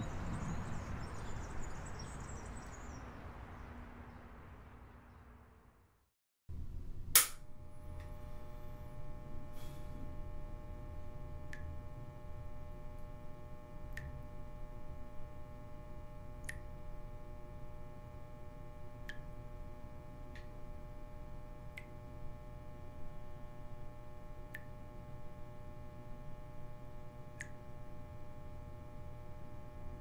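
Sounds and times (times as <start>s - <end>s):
steady electrical hum: 6.5s - 30.0s
water dripping from tap: 16.4s - 16.8s.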